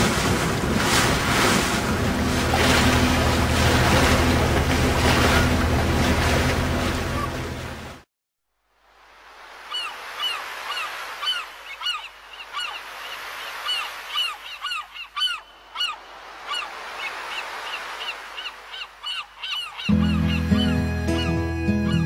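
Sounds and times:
gulls calling: 0:00.6 - 0:08.0, 0:09.6 - 0:22.0
music: 0:19.9 - 0:22.0.

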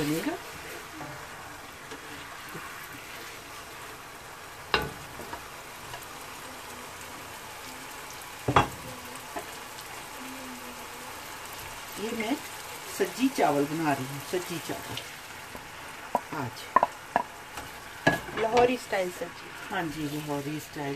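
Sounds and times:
wooden spatula stirring: 0:00.0 - 0:07.4, 0:14.5 - 0:20.7
masala sizzling in a pan: 0:00.0 - 0:20.9.

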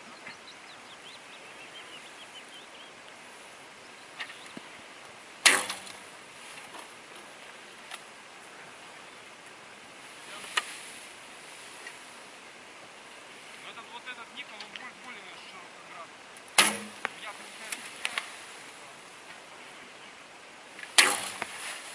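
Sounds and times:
faint birdsong: 0:00.0 - 0:21.9
arrows clicking: 0:05.4 - 0:07.3, 0:16.4 - 0:18.4, 0:20.8 - 0:21.9.

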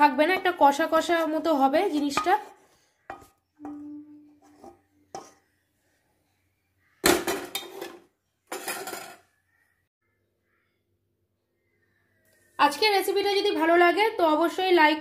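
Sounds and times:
metal utensil knocking on pot: 0:01.9 - 0:03.9.

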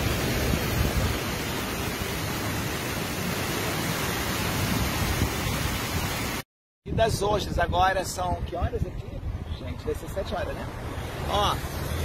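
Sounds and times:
floodwater running: 0:00.0 - 0:06.4.

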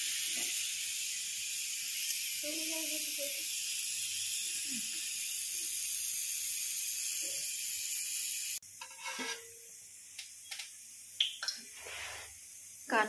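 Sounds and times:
potatoes frying in oil: 0:00.0 - 0:13.0.

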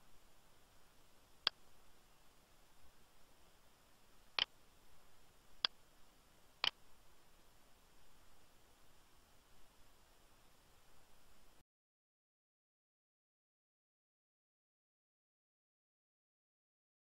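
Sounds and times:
faint background hiss: 0:00.0 - 0:11.6.

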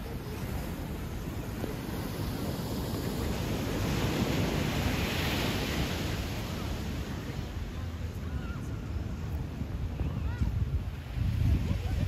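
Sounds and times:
sea waves washing onto shingle: 0:00.0 - 0:08.4
wind on microphone: 0:00.0 - 0:12.0.

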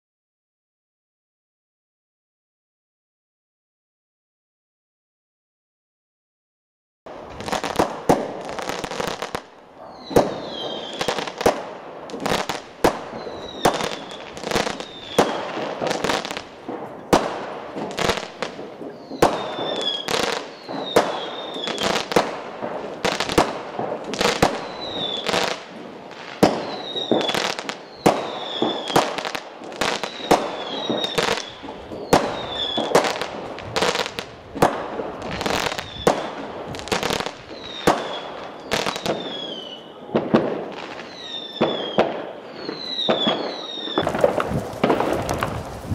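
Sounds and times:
distant fireworks crackle: 0:07.1 - 0:45.9
fireworks bursting: 0:07.1 - 0:45.9
falling whistles: 0:13.2 - 0:15.2, 0:18.9 - 0:21.9, 0:24.6 - 0:25.3, 0:30.0 - 0:32.9, 0:37.6 - 0:40.0, 0:41.0 - 0:44.1.

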